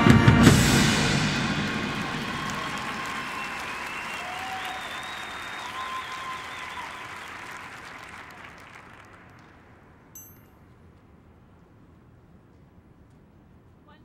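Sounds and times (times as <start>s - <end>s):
crowd applauding: 0.9s - 9.9s
whistles: 1.8s - 9.2s
high electronic ping: 10.2s - 10.5s.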